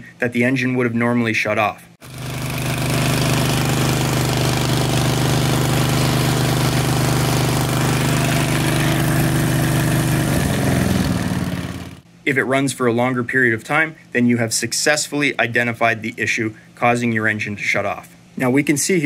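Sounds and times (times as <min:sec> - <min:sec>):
mower engine running: 0:02.0 - 0:12.1.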